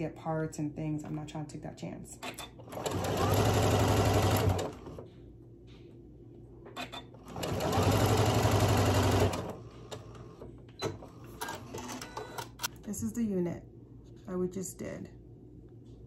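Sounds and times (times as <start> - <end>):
sewing machine stitching: 2.2 - 5.0, 6.8 - 12.4.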